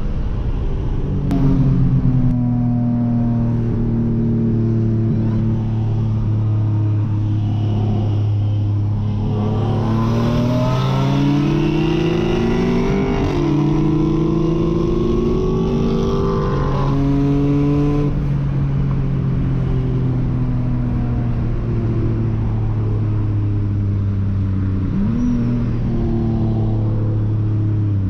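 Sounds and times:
car engine revving through gears: 0:06.3 - 0:18.3.

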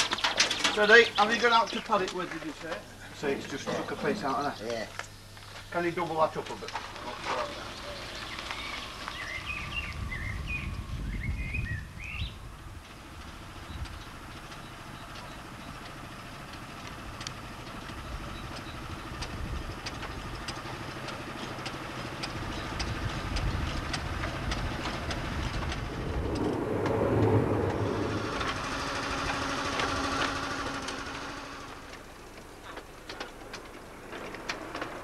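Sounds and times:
wheels clicking on track: 0:00.0 - 0:02.9, 0:04.7 - 0:35.0
miniature train passing: 0:12.0 - 0:35.0.

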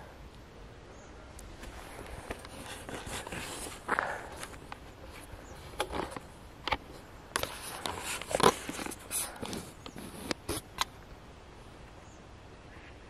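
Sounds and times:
footsteps crunching: 0:01.5 - 0:10.8.

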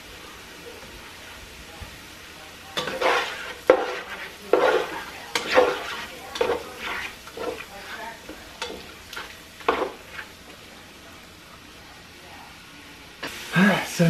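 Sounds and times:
chicken sizzling: 0:00.0 - 0:14.0
utensil clacking on pan: 0:02.8 - 0:10.3
spatula scraping frying pan: 0:02.8 - 0:10.4.

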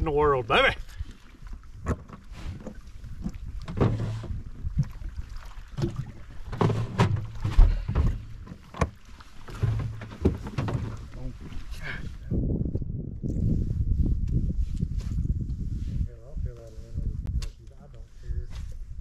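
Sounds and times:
knocks and thumps in a boat: 0:00.8 - 0:12.0.

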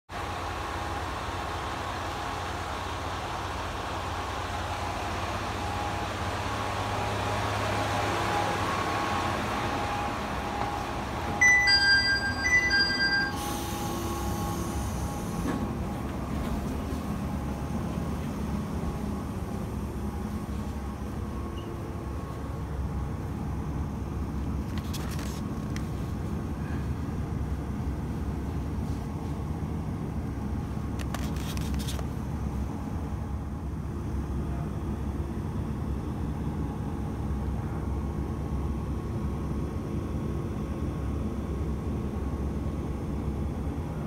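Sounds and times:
diesel railcar rumbling: 0:00.1 - 0:31.0, 0:32.0 - 0:44.0
electronic chime: 0:11.4 - 0:13.9.

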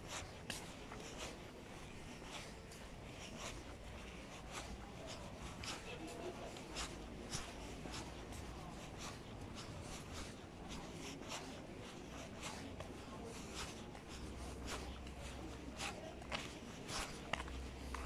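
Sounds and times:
footsteps on pavement: 0:00.0 - 0:18.0.

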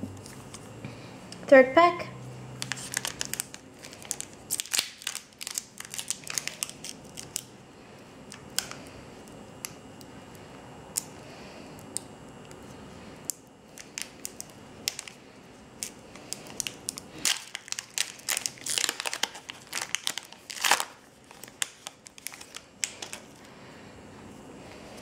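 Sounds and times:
foil wrapper tearing and crinkling: 0:02.6 - 0:07.5, 0:13.7 - 0:15.2, 0:15.8 - 0:23.4.

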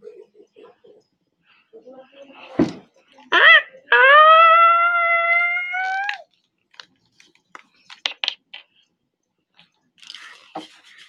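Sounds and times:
high voice holding a note: 0:03.3 - 0:06.2.

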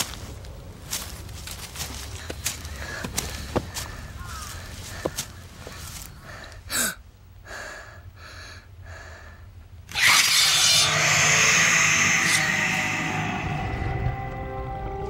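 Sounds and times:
dramatic music and effects: 0:10.0 - 0:15.0.

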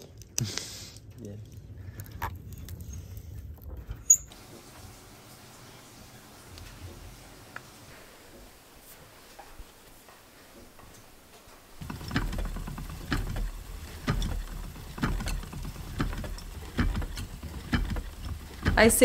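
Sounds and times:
spinning wheel rumbling and knocking: 0:11.8 - 0:19.0.

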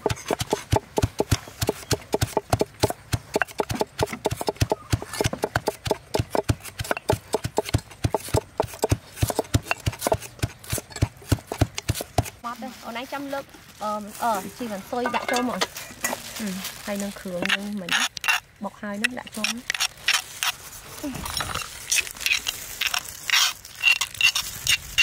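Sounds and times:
pestle pounding in stone mortar: 0:00.0 - 0:12.4.

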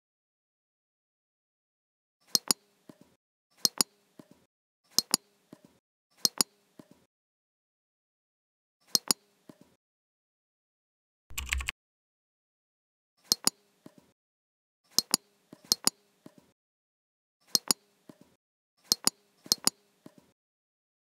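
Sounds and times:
mouse button clicks: 0:11.3 - 0:11.7.

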